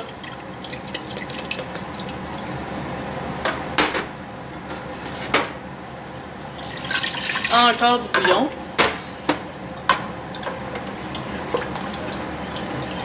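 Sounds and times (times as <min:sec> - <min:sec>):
sauce bubbling and crackling: 0:00.0 - 0:03.0, 0:06.4 - 0:07.6, 0:08.5 - 0:13.0
liquid trickling into pot: 0:00.1 - 0:02.6, 0:06.6 - 0:08.8, 0:09.4 - 0:13.0.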